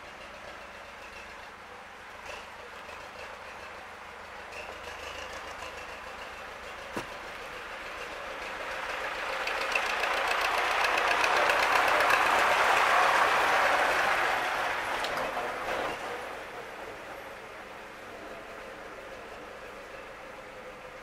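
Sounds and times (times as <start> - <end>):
vehicle passing road noise: 6.8 - 16.7.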